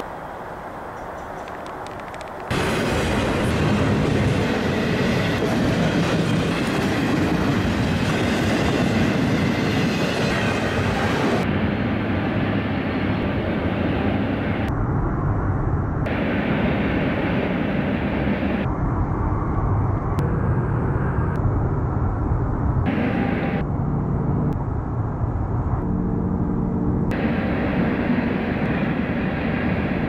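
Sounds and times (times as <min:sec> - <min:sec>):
freight train rolling past: 0:00.8 - 0:14.6
wheels clickety-clack on rail: 0:00.9 - 0:11.4.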